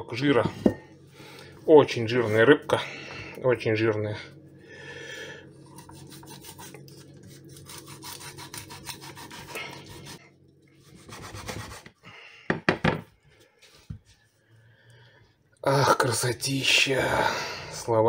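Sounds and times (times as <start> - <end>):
knife sawing through fish: 5.7 - 10.2, 10.8 - 11.9.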